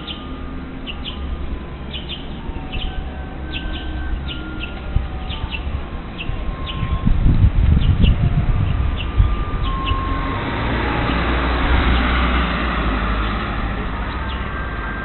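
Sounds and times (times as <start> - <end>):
small birds chirping: 0.0 - 7.0, 7.8 - 10.2.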